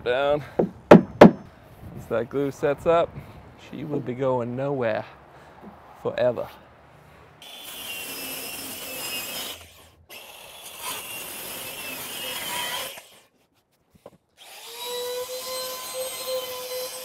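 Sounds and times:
circular saw cutting wood: 7.4 - 13.3, 14.4 - 17.0.

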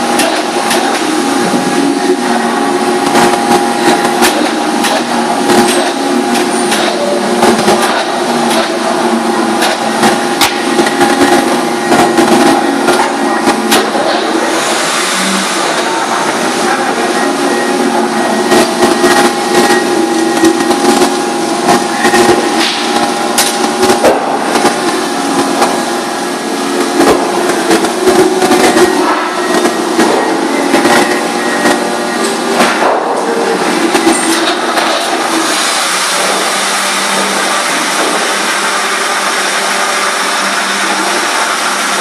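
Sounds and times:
machinery humming: 0.0 - 42.0
paper stacks knocking and clattering: 3.1 - 14.4, 26.8 - 35.4.

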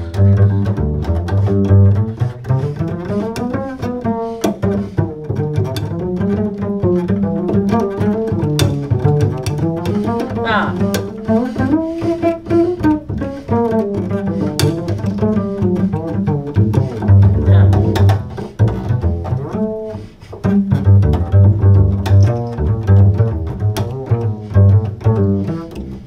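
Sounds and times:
double bass plucked jazz solo: 0.0 - 26.0.

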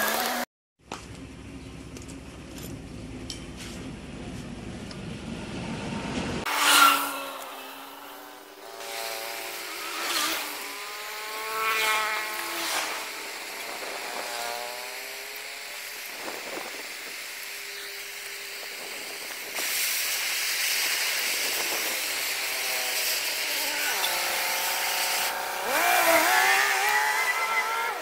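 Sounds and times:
gas torch hissing: 12.3 - 28.0
wavering squeals: 25.7 - 28.0.

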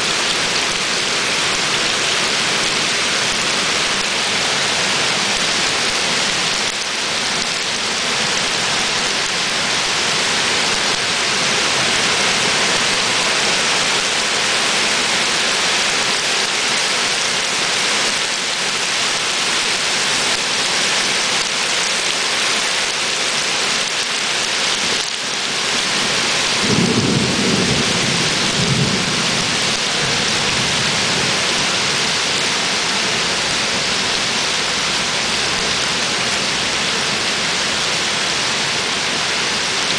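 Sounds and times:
heavy rain on paving: 0.0 - 39.9
thunder rumble: 26.6 - 31.4.

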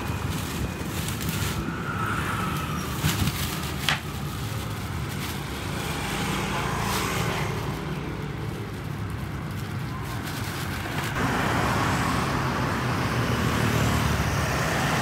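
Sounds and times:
plastic bag rustling: 0.0 - 11.2
motor traffic rumble: 0.0 - 15.0.

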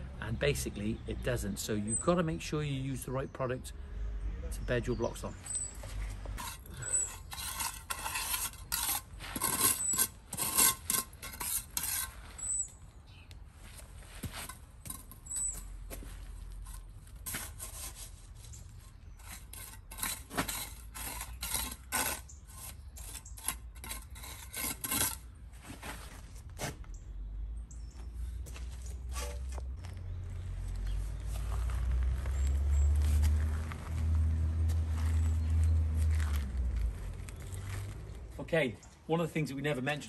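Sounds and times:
trowel scraping stone dust: 5.4 - 12.7, 14.1 - 26.7, 29.1 - 29.6.

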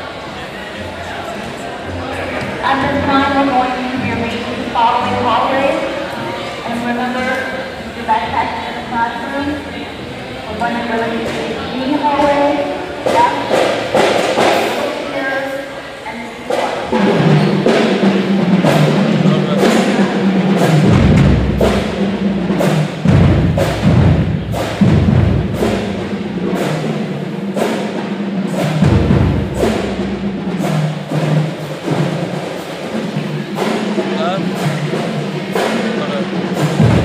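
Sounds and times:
steady drum beat: 10.5 - 15.3, 16.2 - 37.0
bass drum hits: 18.6 - 26.9.

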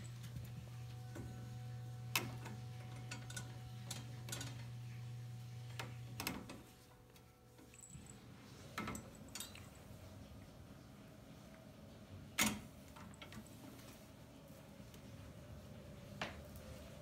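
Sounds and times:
metallic clicks on gate bars: 2.2 - 4.8, 8.8 - 9.8.

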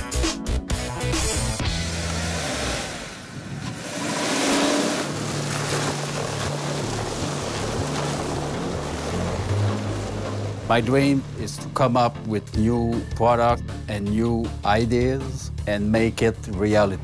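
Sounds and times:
truck engine running: 1.2 - 12.7
tracks churning snow: 1.7 - 11.8.

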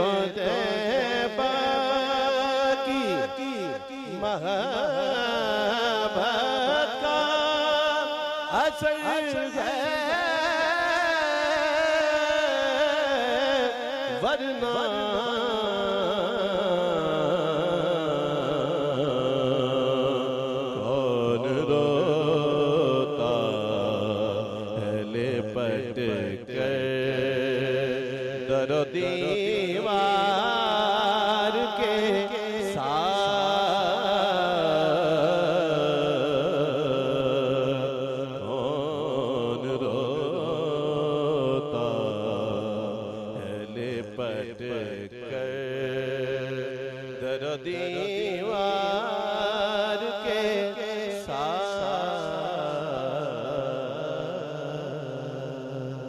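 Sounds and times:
man singing into microphone: 0.0 - 56.0.

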